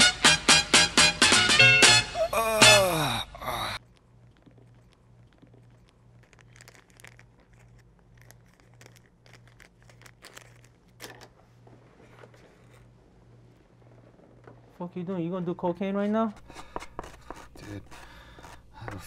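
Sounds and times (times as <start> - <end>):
faint crinkling and rustling: 3.9 - 15.8.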